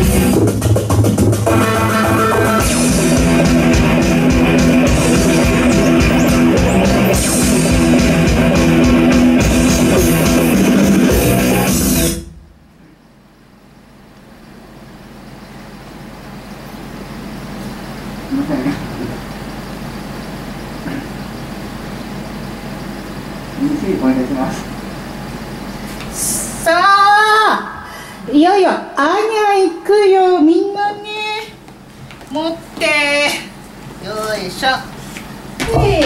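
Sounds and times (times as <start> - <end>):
live rock band playing: 0.0 - 12.3.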